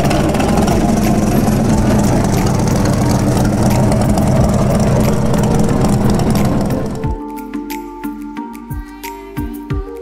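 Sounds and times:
car engine idling: 0.0s - 7.2s.

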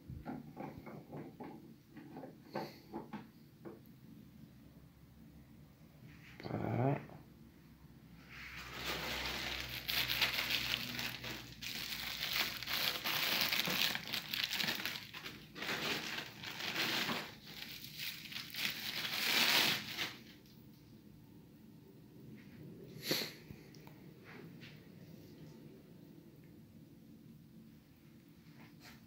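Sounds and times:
plastic packaging crinkling: 8.5s - 20.5s.

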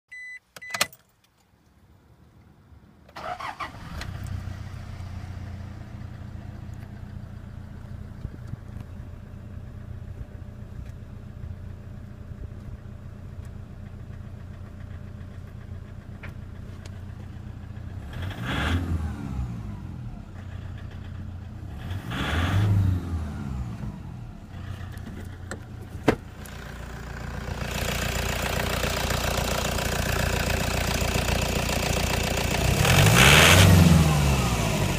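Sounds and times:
diesel engine cranking: 3.1s - 9.0s, 13.4s - 34.9s
diesel engine clatter: 3.2s - 34.9s
diesel engine idling: 4.4s - 18.2s, 19.6s - 21.8s, 23.2s - 34.9s
engine revving: 17.9s - 20.7s, 21.6s - 25.0s, 26.5s - 34.9s.

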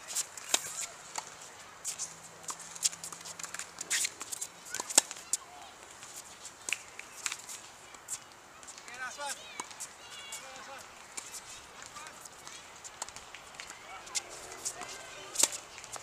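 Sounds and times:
shoe scuffs on court: 0.0s - 5.4s, 9.6s - 16.0s.

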